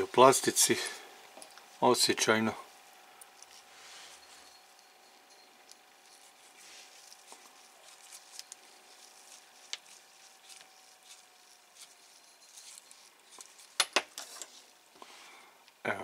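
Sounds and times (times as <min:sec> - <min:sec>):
screwdriver ticking and scraping: 0:04.4 - 0:14.8.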